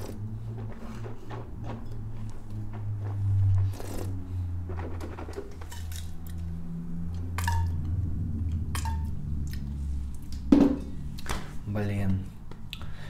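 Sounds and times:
glassware clinking: 8.8 - 9.2.

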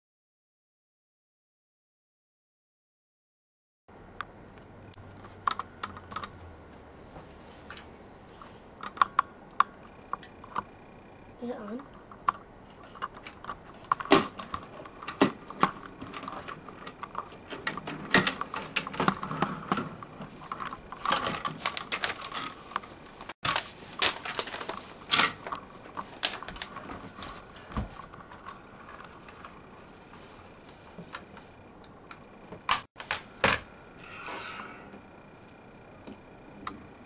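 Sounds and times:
plastic toys clicking and knocking: 5.2 - 6.4, 8.8 - 10.7, 12.0 - 22.8, 23.4 - 29.6.

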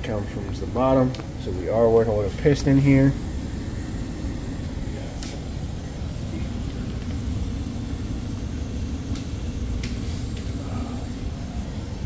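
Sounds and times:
blower rushing hum: 0.0 - 12.0.

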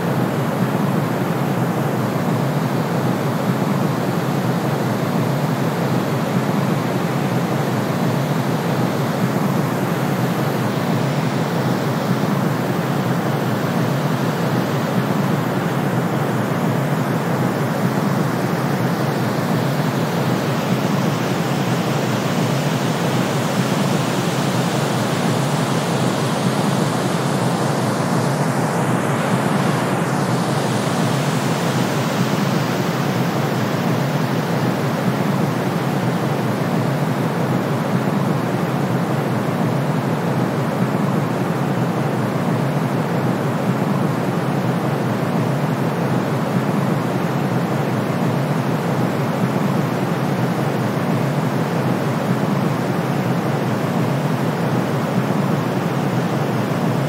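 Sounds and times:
steady low rushing noise with hiss: 0.0 - 57.0.

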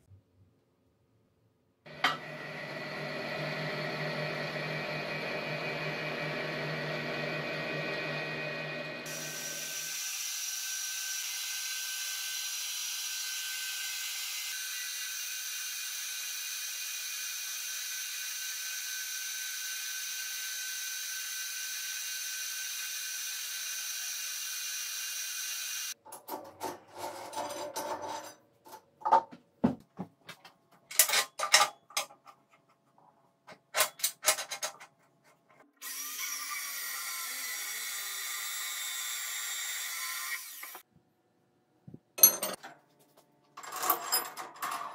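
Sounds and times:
metal lathe running: 1.9 - 9.8.

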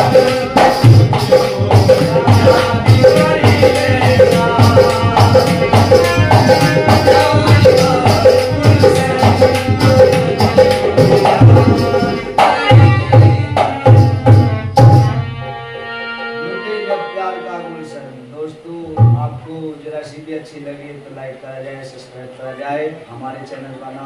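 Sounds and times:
jingling hand percussion: 0.0 - 15.2
dholak drum rhythm: 0.0 - 15.6, 18.8 - 19.6
harmonium chords: 0.0 - 18.3.

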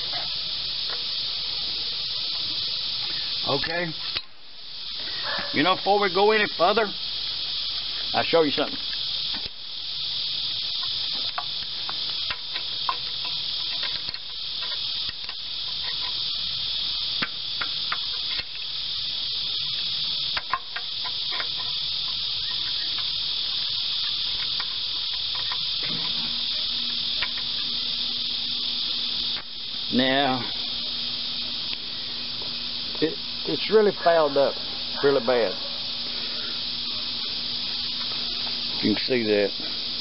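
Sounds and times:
insects chorus: 0.0 - 40.0
low steady hum: 0.0 - 40.0
wrench metallic clicks: 20.3 - 23.2.

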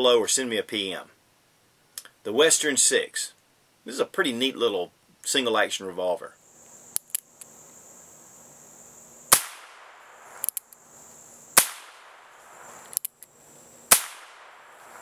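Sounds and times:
revolver hammer cocking clicks: 10.4 - 10.8, 12.9 - 13.3.

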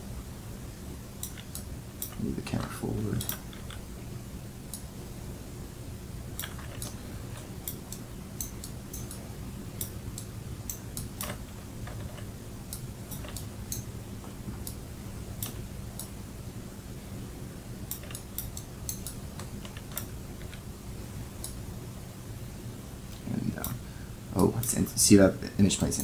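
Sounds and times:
low electrical hum: 0.0 - 26.0
computer mouse and keyboard clicks: 1.2 - 3.9, 6.4 - 9.2, 9.8 - 14.8, 15.4 - 16.1, 17.9 - 20.7.

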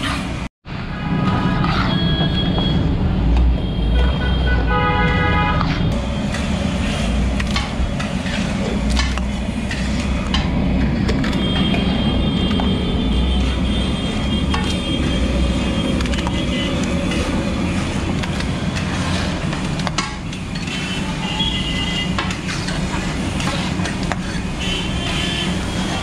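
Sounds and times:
traffic rumble: 0.0 - 26.0
metal ladle scraping a pot: 1.4 - 2.2, 5.5 - 11.8, 13.4 - 26.0.

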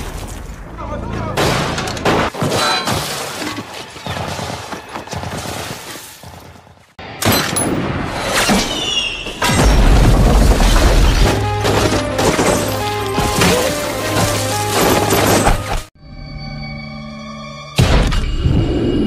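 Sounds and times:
gunshots and impacts: 1.4 - 3.1.

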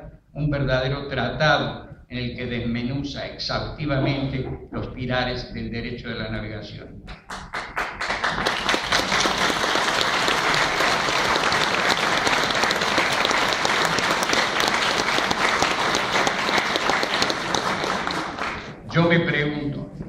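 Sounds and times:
audience applauding: 7.1 - 18.8.

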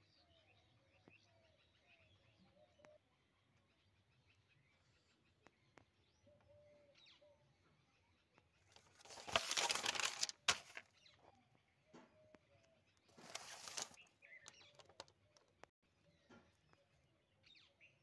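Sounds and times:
faint bird chirps: 0.0 - 9.2
paper page turning: 8.7 - 10.9, 13.1 - 14.0.

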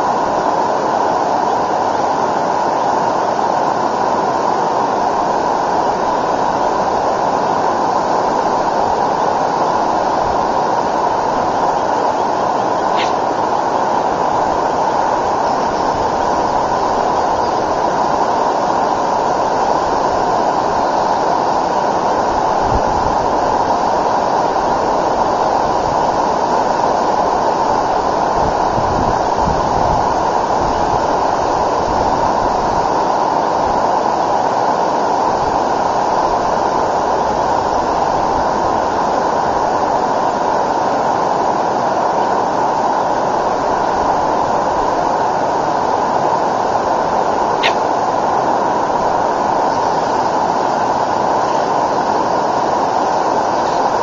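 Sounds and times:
river rushing over rocks: 0.0 - 54.0
wind buffeting microphone: 22.1 - 26.4, 27.1 - 32.9.

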